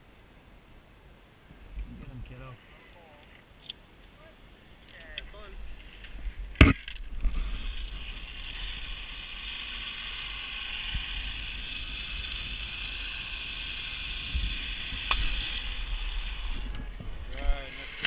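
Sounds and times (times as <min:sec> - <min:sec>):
zipline pulleys whirring on cable: 0:04.8 - 0:18.0
wind rumble on microphone: 0:10.6 - 0:18.0.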